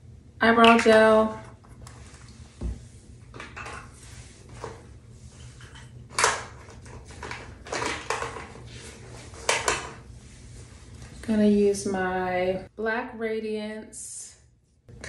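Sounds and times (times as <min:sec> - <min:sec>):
makeup items clattering on counter: 0:05.6 - 0:08.6, 0:09.4 - 0:10.0.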